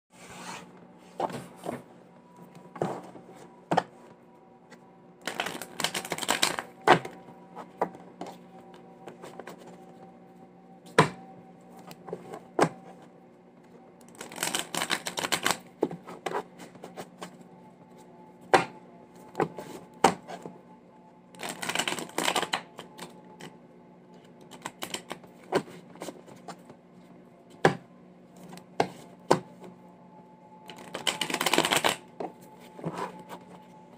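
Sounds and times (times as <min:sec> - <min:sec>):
steady low hum: 0:00.1 - 0:33.9
cards riffle shuffling: 0:05.3 - 0:06.6.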